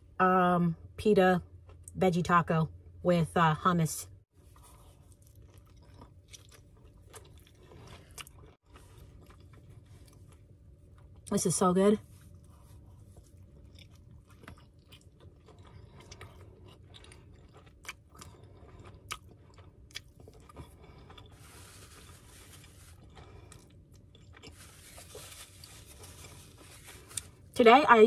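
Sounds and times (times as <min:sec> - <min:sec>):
wet chewing: 0:04.4 - 0:11.3, 0:12.2 - 0:27.6.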